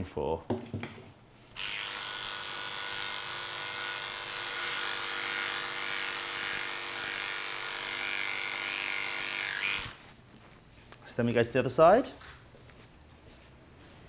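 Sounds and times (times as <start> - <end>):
electric clippers buzzing: 1.5 - 10.0.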